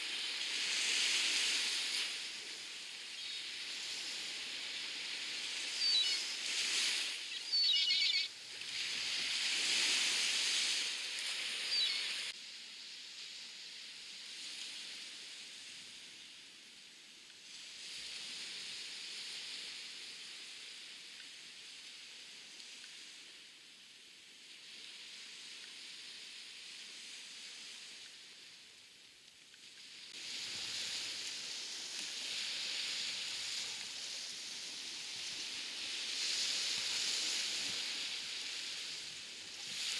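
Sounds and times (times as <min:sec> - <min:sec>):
waves washing onto beach: 0:00.0 - 0:39.9
high chirping bird calls: 0:05.8 - 0:06.2, 0:07.3 - 0:08.3, 0:11.7 - 0:12.2.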